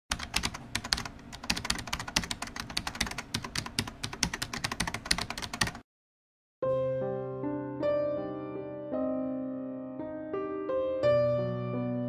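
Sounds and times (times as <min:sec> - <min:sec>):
keyboard typing: 0:00.1 - 0:05.8.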